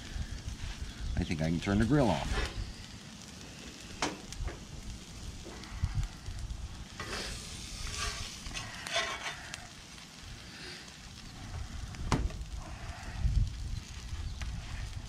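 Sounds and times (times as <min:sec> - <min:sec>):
food sizzling: 0:00.0 - 0:15.0
metal spatula scraping griddle: 0:07.0 - 0:09.6.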